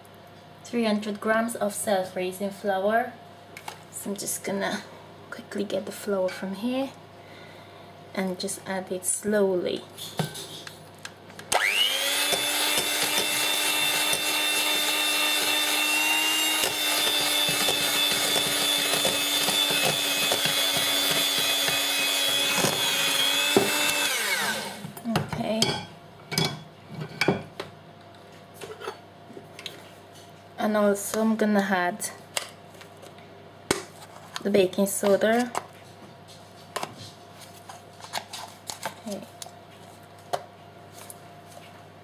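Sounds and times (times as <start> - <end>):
electric hand mixer whining: 11.5 - 25.0.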